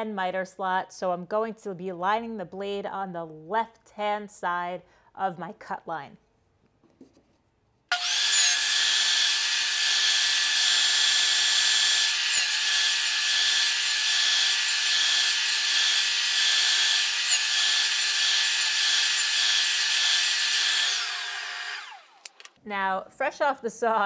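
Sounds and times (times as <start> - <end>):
table saw whining: 7.9 - 22.5.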